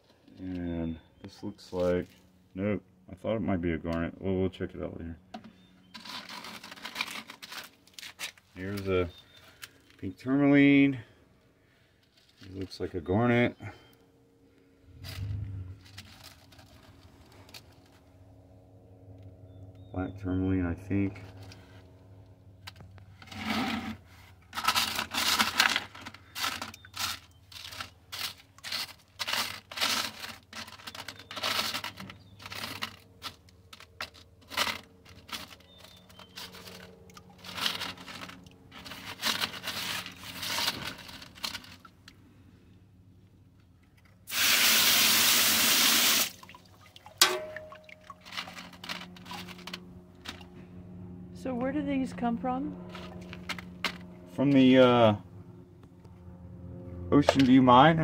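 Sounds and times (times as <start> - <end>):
gravel scraping on mesh screen: 22.7 - 41.8.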